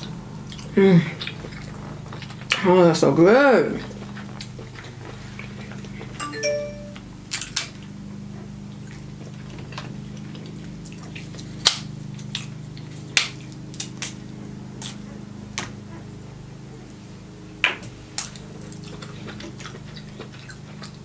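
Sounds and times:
low steady hum: 6.0 - 7.4.

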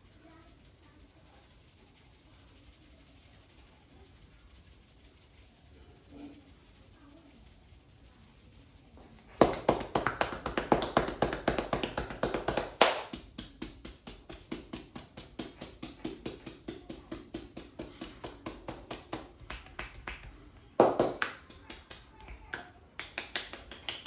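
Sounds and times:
hands slapping in massage: 9.3 - 24.0.

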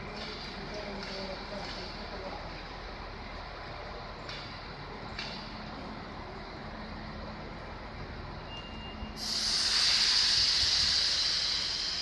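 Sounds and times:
compressed air hissing from brakes: 8.5 - 12.0.

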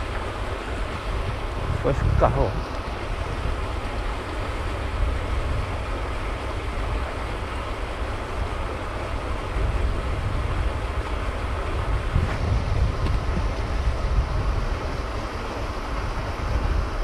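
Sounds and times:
low uneven rumble: 0.0 - 17.0.

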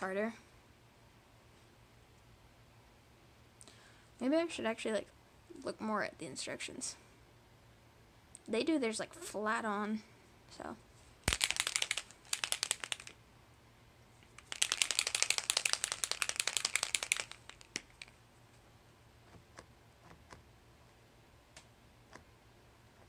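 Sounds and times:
paint marker ball rattling: 11.3 - 13.2, 14.2 - 18.2.

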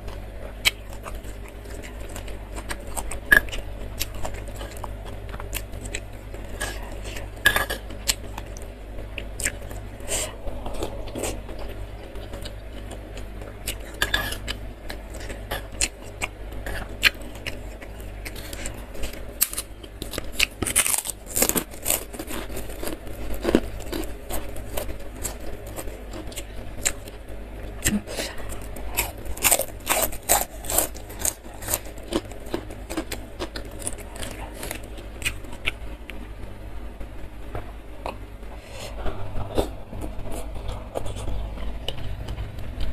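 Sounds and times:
chewing: 0.0 - 27.2, 27.8 - 36.2
crackers crunching: 0.0 - 36.6, 37.5 - 42.9
steady low hum: 0.0 - 42.9.

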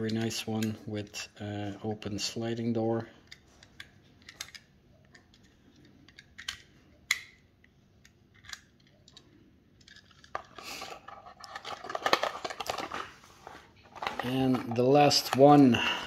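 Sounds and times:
small clicks of toy handling: 3.2 - 15.6
packaging crackling rustle: 9.9 - 15.6.

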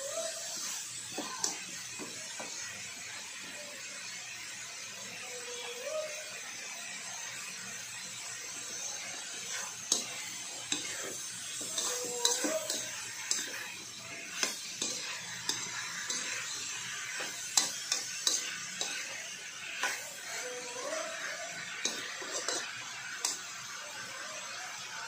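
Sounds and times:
frying sizzle: 0.0 - 25.0
metal spatula scraping a wok: 9.1 - 20.4, 21.2 - 23.4.

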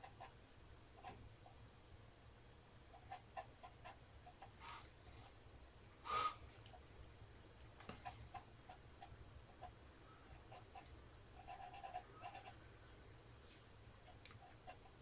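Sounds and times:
breathy hiss with faint whistle: 6.0 - 6.5
pencil scratching on paper: 11.4 - 12.6.

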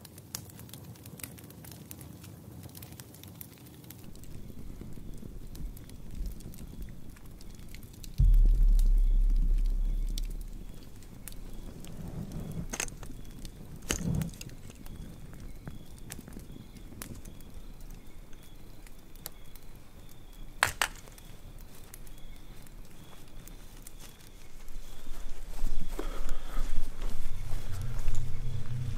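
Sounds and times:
sharp cracks of fire: 0.0 - 26.2
open fire crackling: 0.0 - 28.9
deep low rumble: 4.0 - 13.9, 26.8 - 28.9.

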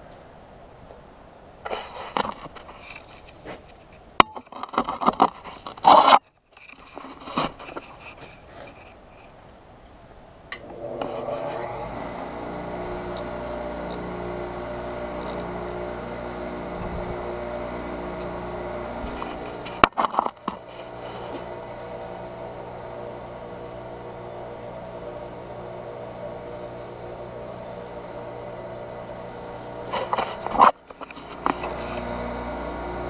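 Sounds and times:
bench grinder motor humming: 10.6 - 33.0.

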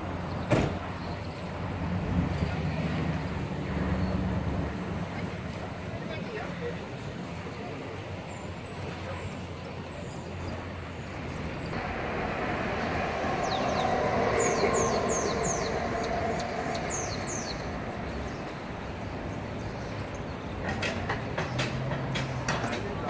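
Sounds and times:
street traffic passing: 0.0 - 23.0
high falling squeals: 11.7 - 20.0.

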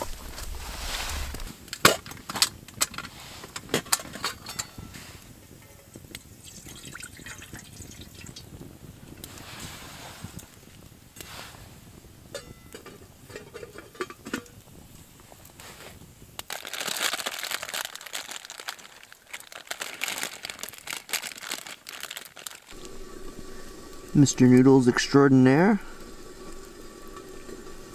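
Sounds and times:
plastic packet crinkling: 16.4 - 22.8.

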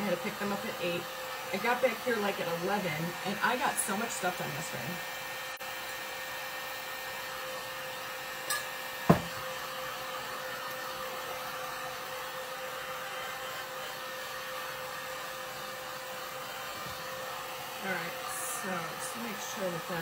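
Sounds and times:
heat gun blowing: 0.0 - 20.0
sharp knock: 9.1 - 9.4.

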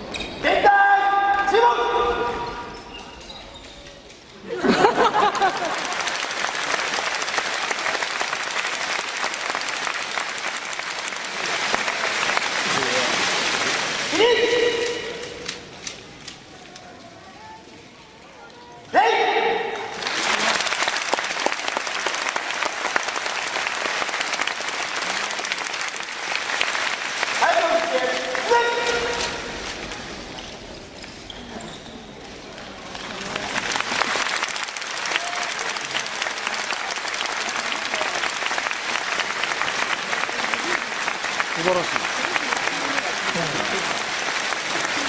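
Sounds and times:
large audience applauding: 4.6 - 15.6, 19.9 - 29.4, 32.9 - 45.0.

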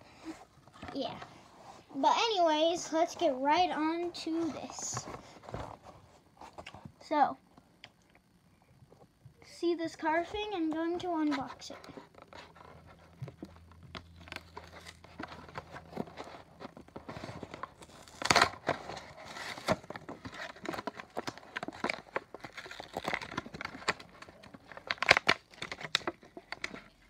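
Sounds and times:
plastic packaging crinkling and ripping: 11.4 - 27.0.

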